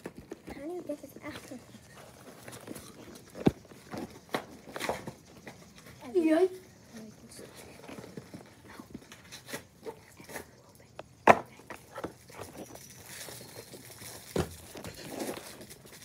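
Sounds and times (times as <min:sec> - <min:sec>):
packaging crinkling: 0:12.2 - 0:16.0.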